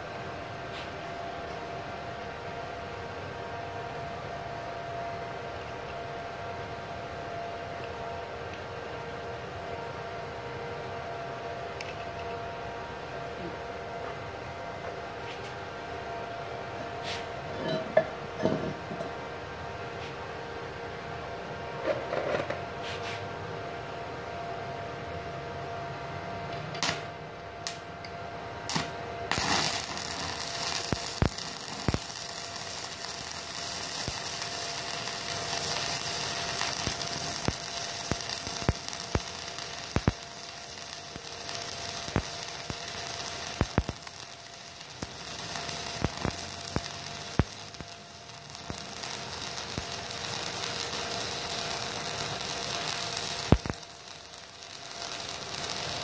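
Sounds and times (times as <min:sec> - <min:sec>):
welding arc hissing and popping: 0:28.7 - 0:56.0.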